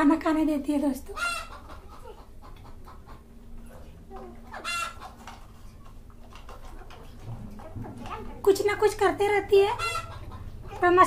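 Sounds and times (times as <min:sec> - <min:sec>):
chicken calling: 0:01.1 - 0:07.7, 0:09.5 - 0:11.0.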